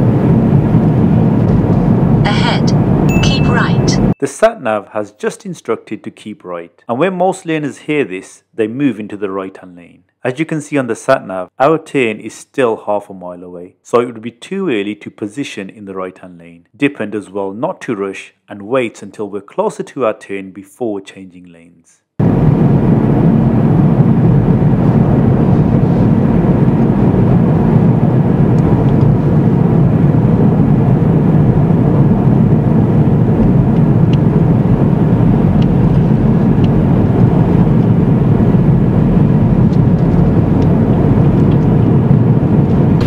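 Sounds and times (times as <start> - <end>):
car tyre and engine noise: 22.2 - 43.0.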